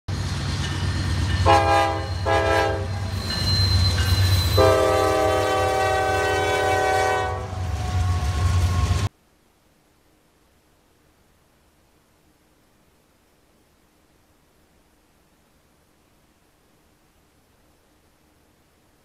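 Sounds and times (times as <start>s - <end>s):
moving train rumble: 0.1s - 9.1s
train horn blasts: 1.4s - 3.3s, 4.5s - 9.1s.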